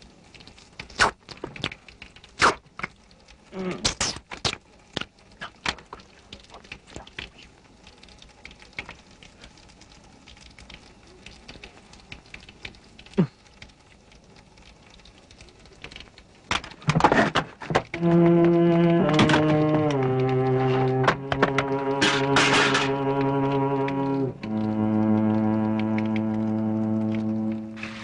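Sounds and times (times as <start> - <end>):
rustling noise: 27.7 - 28.0.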